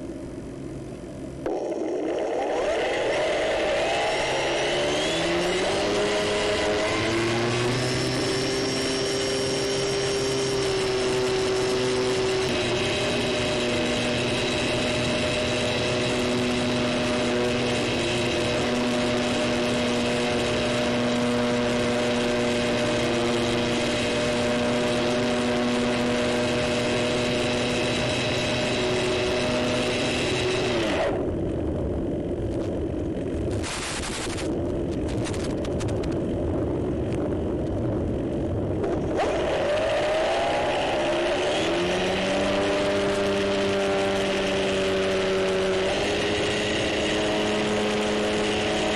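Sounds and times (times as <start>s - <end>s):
electric motor propeller whine: 0.0s - 48.9s
rushing air: 33.5s - 43.8s.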